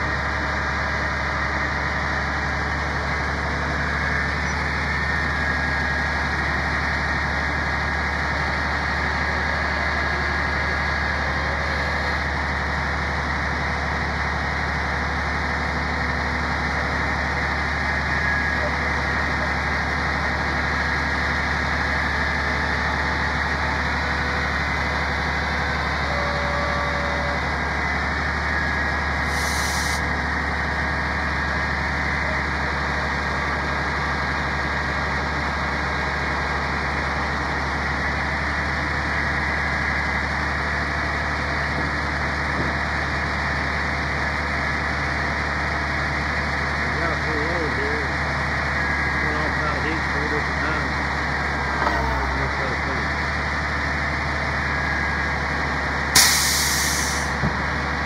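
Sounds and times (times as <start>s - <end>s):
truck engine running: 0.0s - 58.0s
short hiss: 29.3s - 30.0s, 56.2s - 57.3s.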